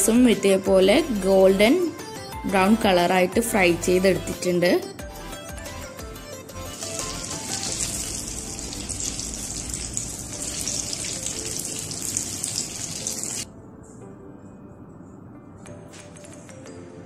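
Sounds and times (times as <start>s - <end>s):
food deep-frying in hot oil: 7.0s - 13.4s.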